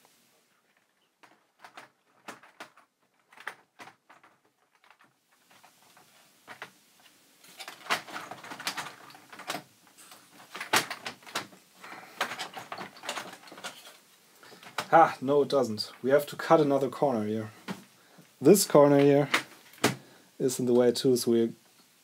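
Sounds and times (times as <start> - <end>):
plastic keyboard case clattering: 1.2 - 6.8, 7.6 - 13.9.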